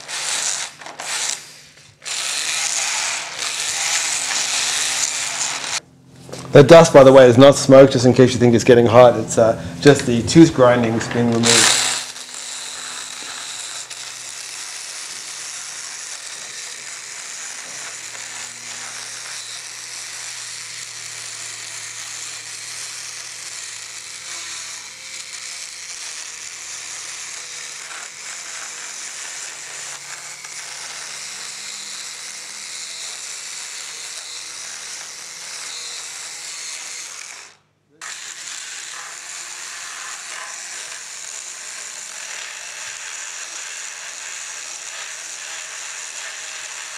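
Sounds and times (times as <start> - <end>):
high-pitched grinding whir: 0.0 - 46.9
low motor hum: 7.3 - 12.0.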